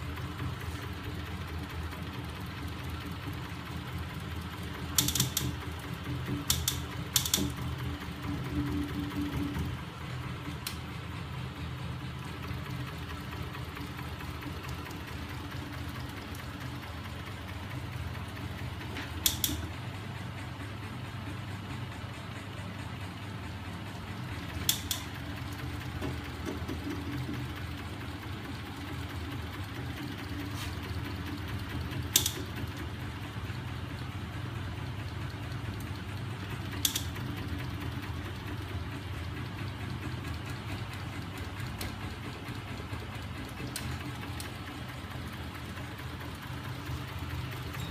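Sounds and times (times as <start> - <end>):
sharp clicks: 19.2 - 19.7.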